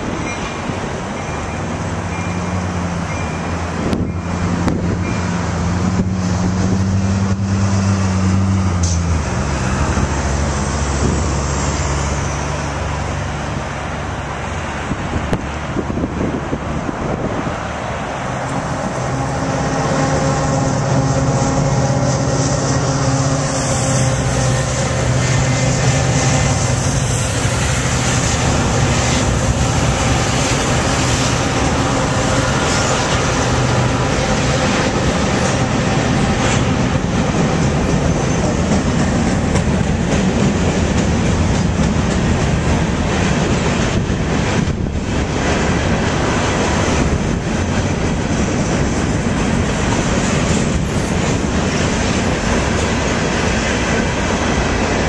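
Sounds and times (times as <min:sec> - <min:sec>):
diesel locomotive engines droning: 0:00.0 - 0:55.0
train wheels clattering on rails: 0:18.3 - 0:55.0.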